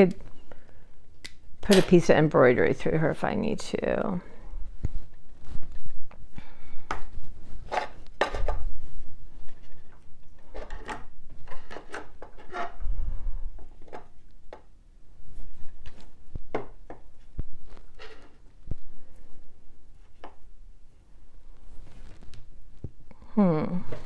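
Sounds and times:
decorations knocking and tapping: 16.3 - 17.5.

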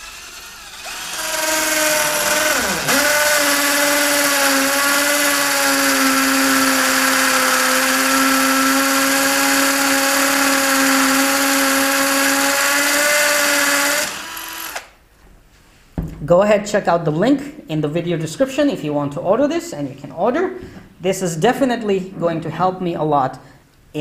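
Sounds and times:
cordless drill drilling into wall: 0.0 - 15.0.

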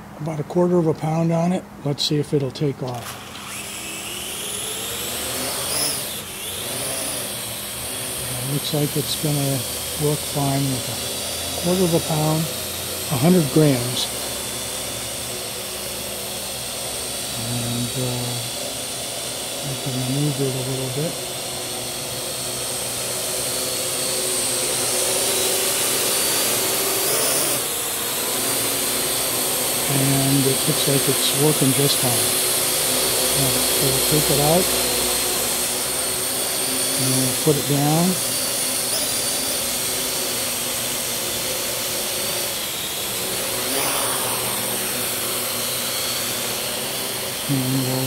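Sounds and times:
drone rotors whirring: 2.7 - 48.0.

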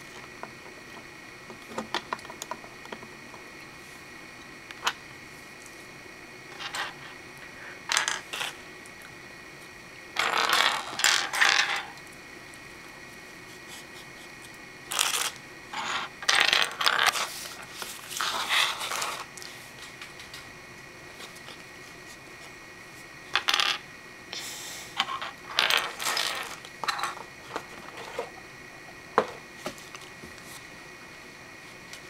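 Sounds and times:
plastic toy bricks clattering: 10.2 - 11.9, 14.9 - 17.3, 25.0 - 27.2.

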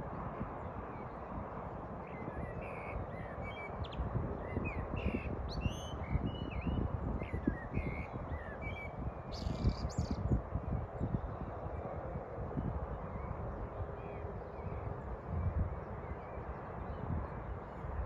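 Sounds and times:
small birds chirping: 2.1 - 10.2.

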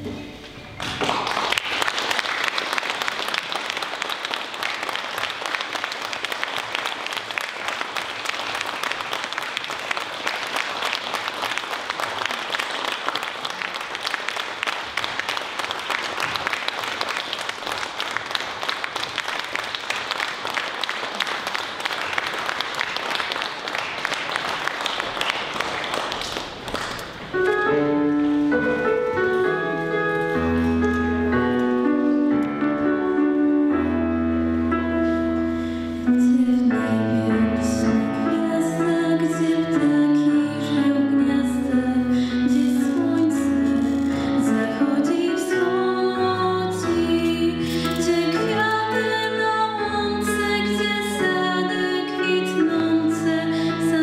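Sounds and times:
music: 0.0 - 1.7, 27.3 - 54.0
audience applauding: 0.8 - 27.4.

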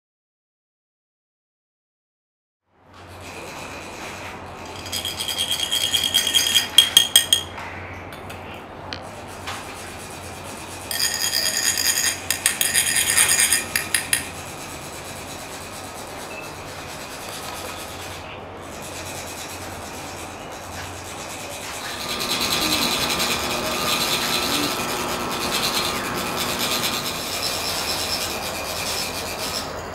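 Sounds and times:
metal funnels rasping together: 3.2 - 7.4, 10.9 - 29.9.

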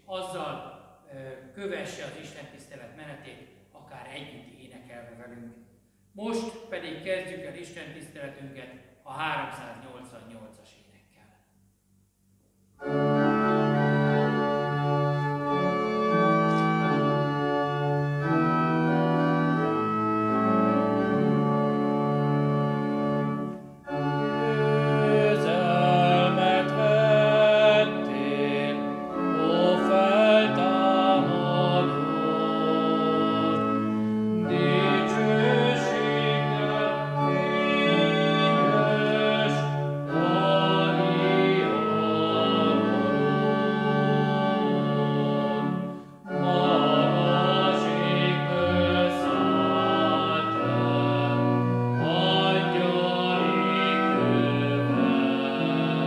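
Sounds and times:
organ playing hymn chords: 12.7 - 56.0
people singing: 24.4 - 33.8, 34.4 - 56.0.

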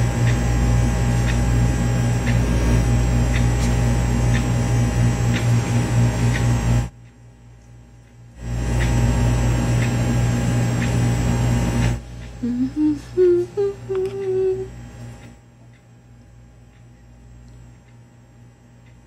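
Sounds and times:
loud steady drone: 0.0 - 6.9, 8.4 - 14.7
person humming a tune: 2.3 - 3.1, 12.3 - 14.8.

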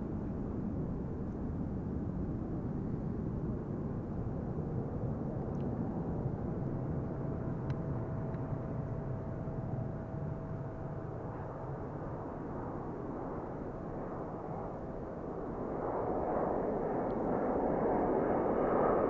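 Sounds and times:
airliner engine rumble: 0.0 - 19.0
thin steady whine: 5.6 - 15.5.

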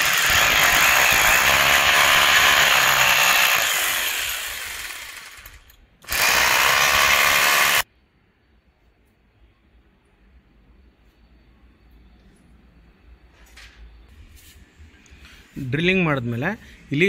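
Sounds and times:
hammer drill boring into wall: 0.0 - 7.8.

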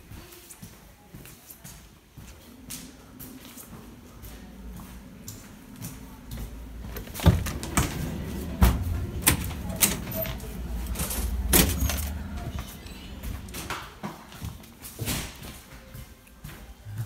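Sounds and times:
low train rumble: 2.5 - 14.6
train doors clanking: 6.8 - 14.3.

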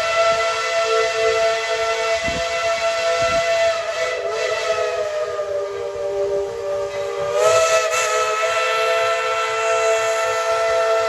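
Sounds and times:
steam locomotive chime whistle: 0.0 - 11.0.

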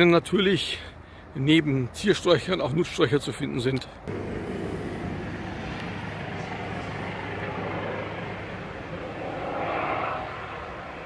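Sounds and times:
distant engine drone: 4.1 - 11.0.

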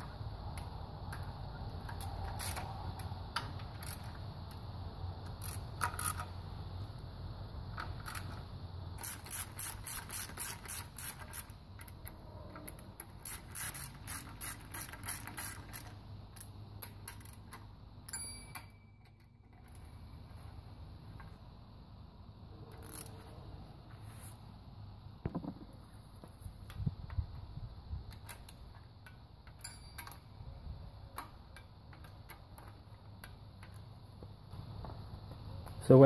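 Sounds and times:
ratchet wrench clicking: 0.0 - 6.4, 7.7 - 19.9, 22.7 - 23.3, 28.1 - 30.3, 31.1 - 33.9.

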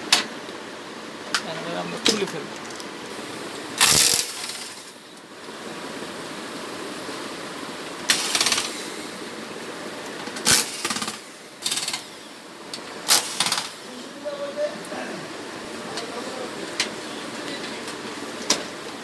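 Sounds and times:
electric screwdriver whirring: 3.8 - 4.9, 13.1 - 13.7.

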